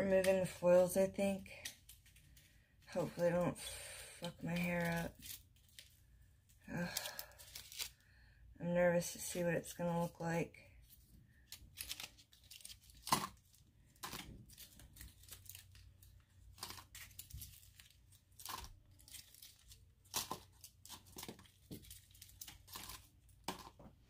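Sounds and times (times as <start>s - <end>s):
aluminium foils crinkling: 4.2s - 8.0s, 10.8s - 24.0s.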